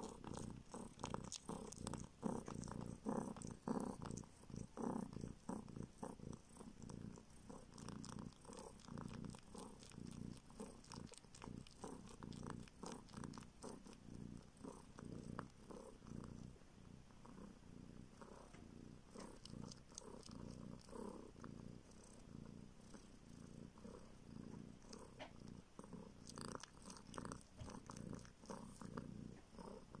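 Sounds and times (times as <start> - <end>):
kitten purring: 0.0 - 30.0.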